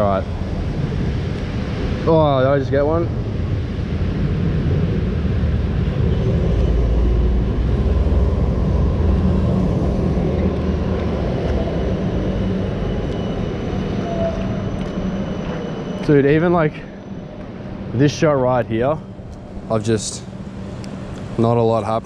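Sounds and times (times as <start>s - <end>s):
traffic rumble on wet streets: 0.0s - 15.6s.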